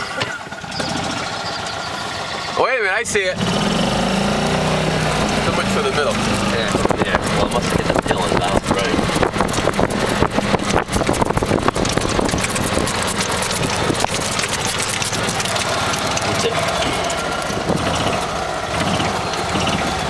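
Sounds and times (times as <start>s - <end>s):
golf cart driving over grass: 0.0s - 20.0s
rattling and bumping: 4.8s - 19.8s.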